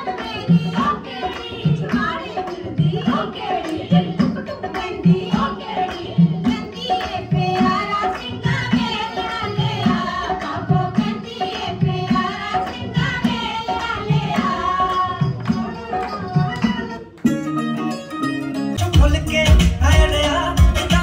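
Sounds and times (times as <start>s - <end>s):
person singing: 18.8s - 21.0s.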